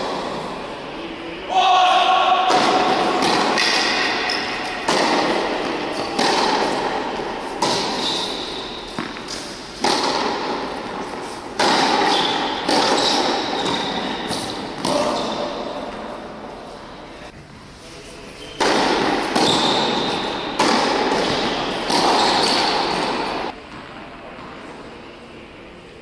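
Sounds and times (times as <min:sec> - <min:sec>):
racket striking tennis ball: 0:02.4 - 0:16.3, 0:18.5 - 0:23.6
tennis ball bouncing: 0:02.5 - 0:16.1, 0:18.6 - 0:24.6.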